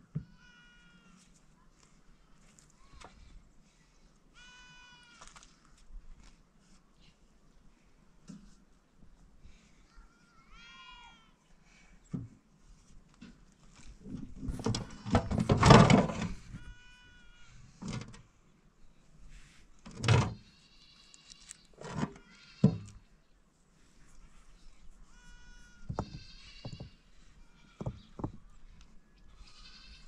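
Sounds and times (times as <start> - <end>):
livestock bleating: 0.2 - 1.3, 4.4 - 5.4, 10.1 - 11.4, 16.4 - 17.8, 20.4 - 23.1, 25.0 - 28.2, 29.3 - 30.0.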